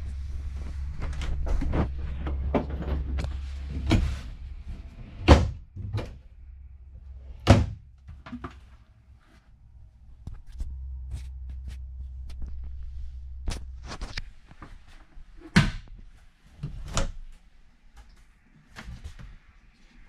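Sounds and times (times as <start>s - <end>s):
steady low hum: 0.0s - 18.4s
doors opening and shutting: 0.9s - 6.3s.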